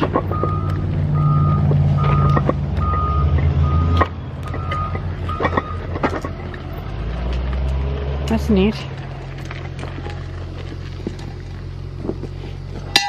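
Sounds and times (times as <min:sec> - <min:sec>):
engine running low: 0:00.0 - 0:13.0
reversing alarm beeping: 0:00.3 - 0:06.0.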